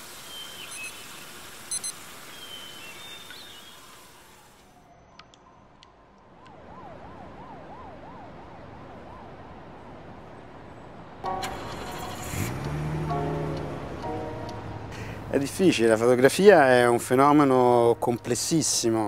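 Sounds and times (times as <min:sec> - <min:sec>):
background hiss: 0:00.0 - 0:04.6
siren wailing: 0:04.5 - 0:10.2.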